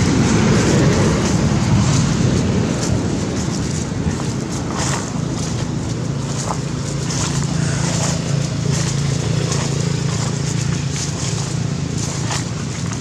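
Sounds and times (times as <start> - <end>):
dry leaves crackling underfoot: 0.0 - 13.0
low engine drone: 0.0 - 13.0
wind noise on microphone: 0.0 - 13.0.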